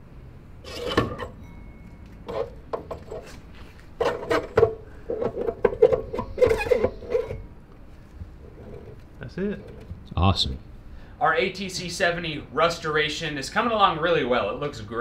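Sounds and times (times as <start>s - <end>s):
metal axle knocking and clunking: 4.0s - 7.5s.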